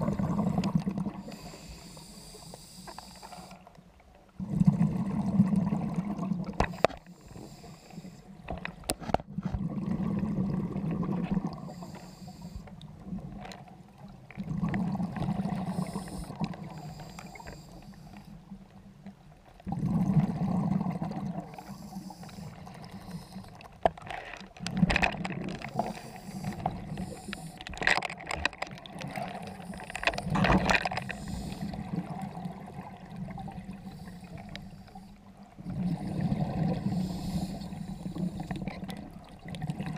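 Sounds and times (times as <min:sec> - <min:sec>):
underwater exhaled bubbles rumbling: 0:00.0 - 0:01.5, 0:04.2 - 0:06.9, 0:08.3 - 0:11.8, 0:12.7 - 0:39.9.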